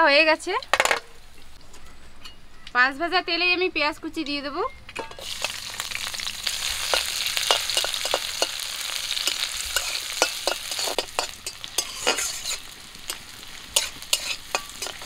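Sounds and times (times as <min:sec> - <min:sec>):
onions sizzling in hot oil: 0:05.2 - 0:15.0
metal spatula scraping pan: 0:09.2 - 0:15.0.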